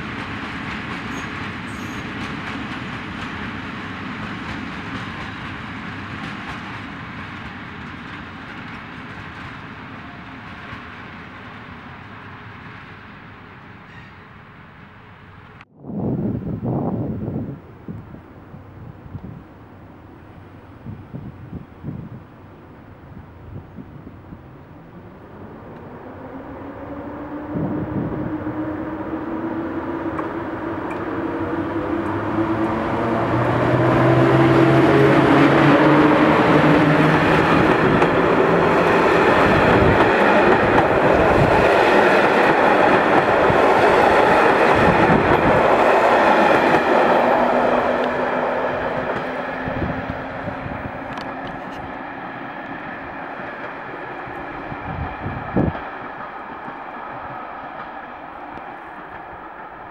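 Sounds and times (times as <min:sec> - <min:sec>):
train wheels rumbling on rails: 0:00.0 - 0:15.7, 0:16.8 - 0:59.9.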